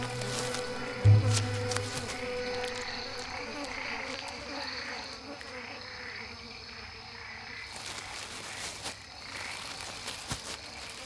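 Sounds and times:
insect chorus buzzing: 0:00.0 - 0:11.0.

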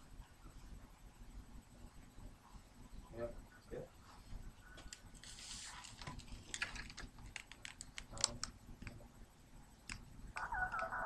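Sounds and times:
typing on computer keyboard: 0:06.6 - 0:09.0.

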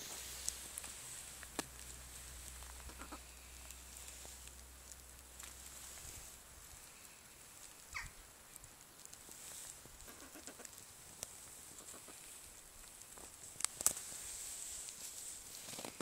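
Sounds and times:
hens clucking softly: 0:02.8 - 0:03.4, 0:11.7 - 0:12.3.

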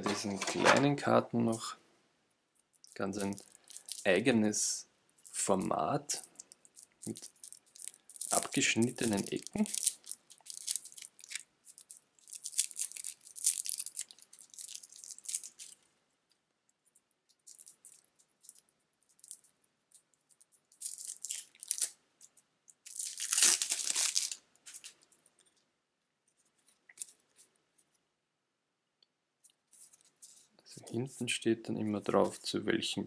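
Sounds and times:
plastic wrap crinkling and tearing: 0:02.8 - 0:04.3, 0:05.2 - 0:15.8, 0:17.3 - 0:25.1.

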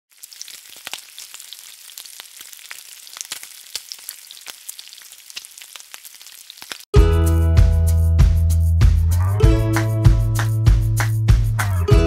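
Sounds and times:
food sizzling in hot oil: 0:00.1 - 0:06.9.

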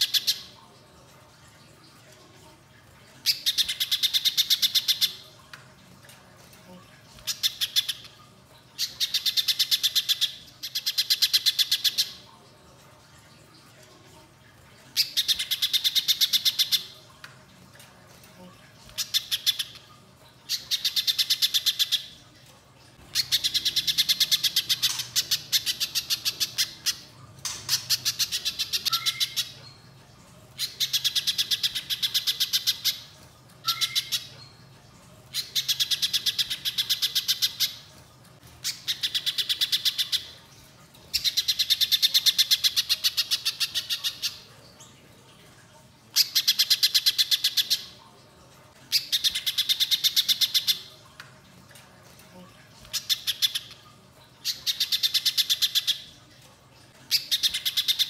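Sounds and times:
bird singing sharp repeated notes: 0:23.2 - 0:29.6, 0:33.6 - 0:34.3.

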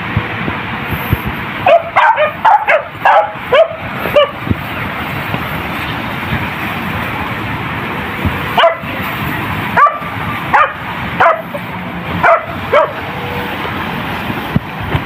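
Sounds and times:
dog yelping: 0:01.6 - 0:04.4, 0:08.6 - 0:08.9, 0:09.8 - 0:13.0.

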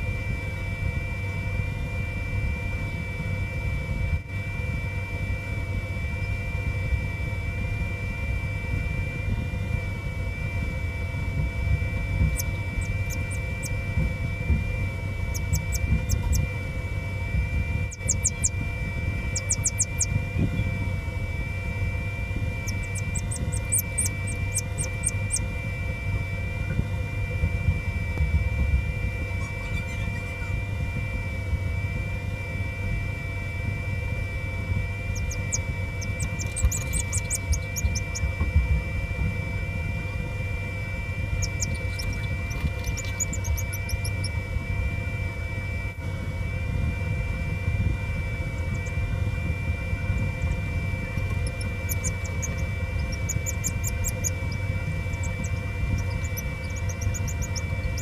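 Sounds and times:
incubator humming: 0:00.0 - 0:58.0
high-pitched chirping: 0:12.2 - 0:13.8, 0:15.2 - 0:16.5, 0:17.9 - 0:18.6, 0:19.2 - 0:20.7, 0:22.6 - 0:25.5, 0:35.1 - 0:38.3, 0:41.3 - 0:44.4, 0:50.1 - 0:58.0.

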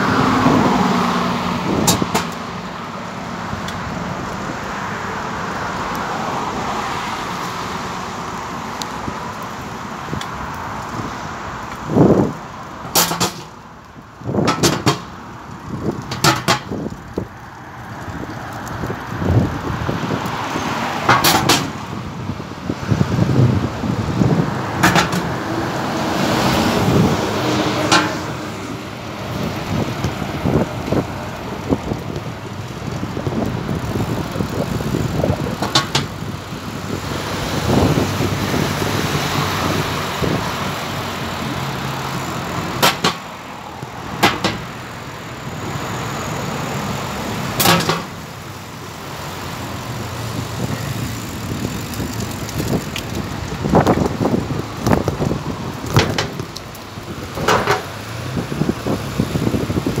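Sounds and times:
road traffic passing: 0:00.0 - 1:00.0
sharp knocks: 0:42.8 - 0:43.2, 0:44.2 - 0:44.7.

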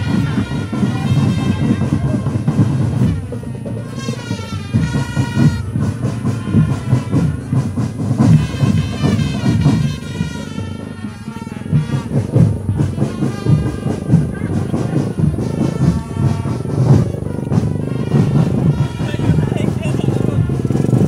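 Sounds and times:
marching drum band playing: 0:00.0 - 0:21.0.

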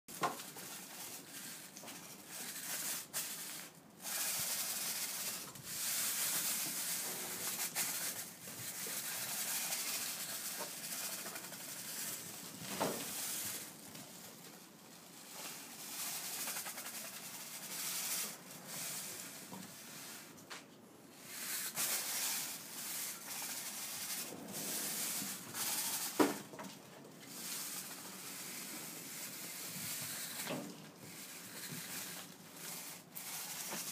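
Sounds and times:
broom scraping stone paving: 0:00.4 - 0:14.2, 0:21.2 - 0:26.6.

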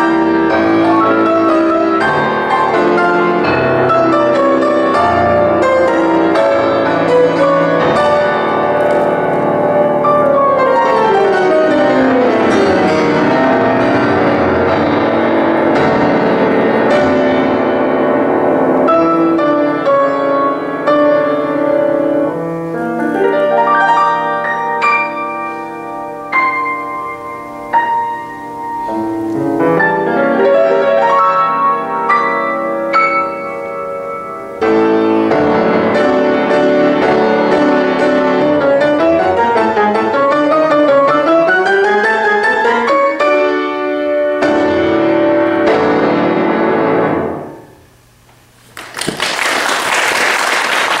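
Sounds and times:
solo grand piano: 0:00.0 - 0:49.8
audience applause: 0:48.7 - 0:51.0.

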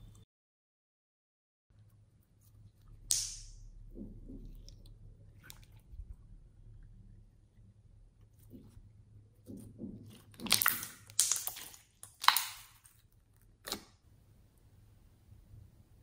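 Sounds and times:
slime squishing and popping: 0:10.0 - 0:13.0.

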